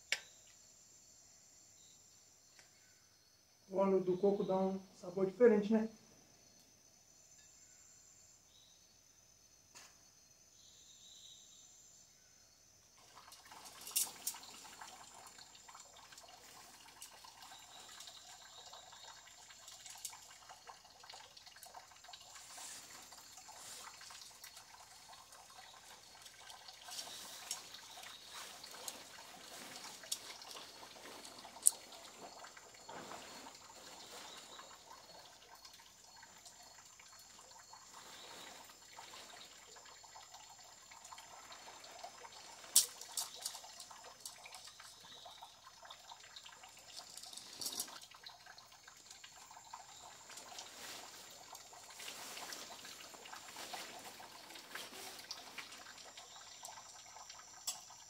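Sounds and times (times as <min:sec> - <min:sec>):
water trickling and dripping: 0:12.8 - 0:58.0
high insect-like drone: 0:21.9 - 0:35.2.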